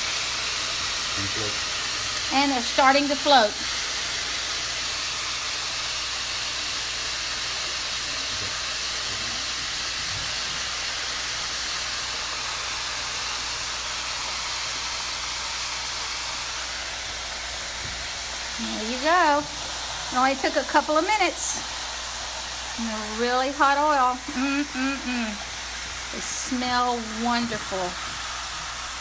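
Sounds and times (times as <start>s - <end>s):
oil sizzling: 0.0s - 29.0s.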